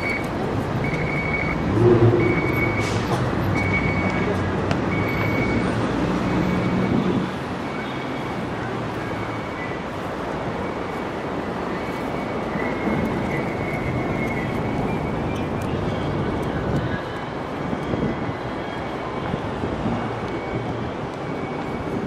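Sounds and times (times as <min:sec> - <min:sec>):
traffic noise: 0:00.0 - 0:22.0.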